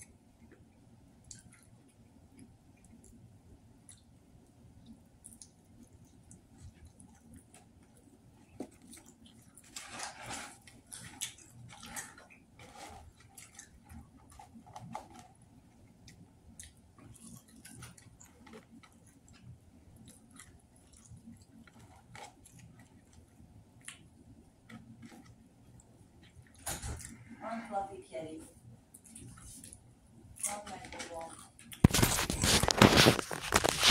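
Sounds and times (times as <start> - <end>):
person chewing food: 0.4 - 27.4
paper tray crinkling: 31.8 - 33.9.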